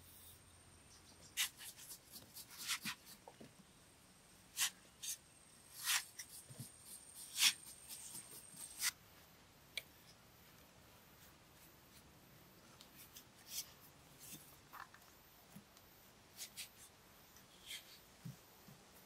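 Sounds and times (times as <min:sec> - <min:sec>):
metal trowel scraping dried mud: 0:04.6 - 0:08.9.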